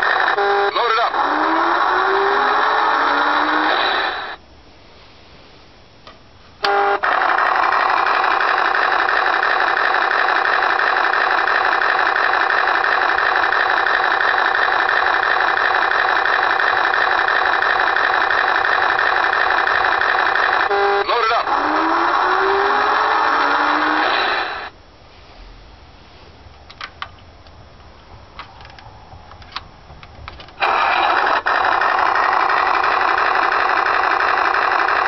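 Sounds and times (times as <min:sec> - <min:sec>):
electronic engine drone: 0:00.0 - 0:04.4, 0:06.6 - 0:24.8, 0:30.5 - 0:35.0
toy engine sound with glides: 0:00.0 - 0:04.4, 0:06.6 - 0:24.7, 0:30.6 - 0:35.0.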